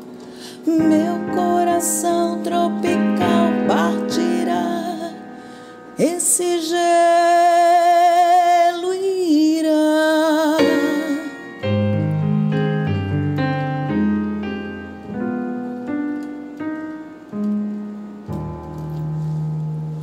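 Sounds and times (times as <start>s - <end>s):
keyboard playing piano chords: 0.0s - 7.7s, 10.4s - 20.0s
woman singing with vibrato: 0.5s - 11.6s.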